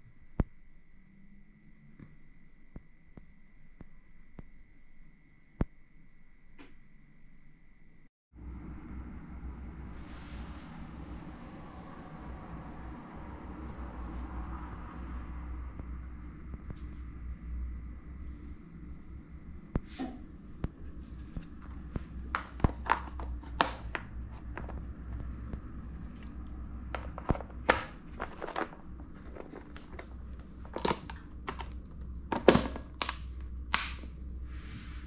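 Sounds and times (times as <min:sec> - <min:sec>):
steady low hum: 0:00.0 - 0:35.0
plastic lunch box clicking: 0:30.7 - 0:31.8.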